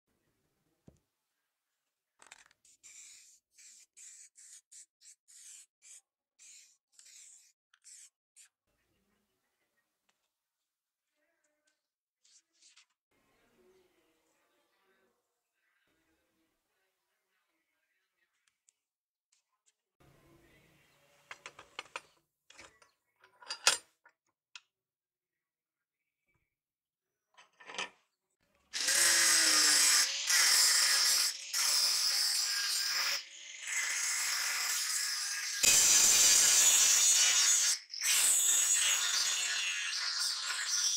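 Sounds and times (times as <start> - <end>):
spray paint can hissing: 2.8 - 8.1, 28.8 - 34.8, 35.5 - 40.9
angle grinder running: 28.8 - 40.9.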